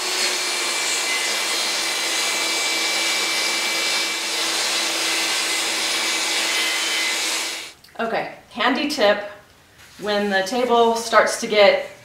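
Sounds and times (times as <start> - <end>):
vacuum motor running: 0.0 - 7.7.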